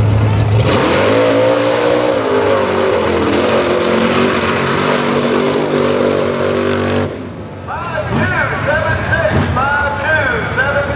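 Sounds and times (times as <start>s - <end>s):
tyres churning through mud: 0.0s - 7.2s
buggy engine at high revs: 0.0s - 7.4s.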